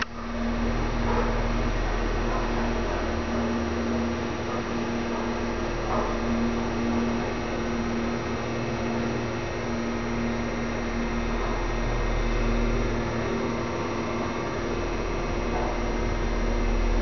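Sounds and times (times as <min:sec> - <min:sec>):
elevator hum and whir: 0:00.0 - 0:17.0.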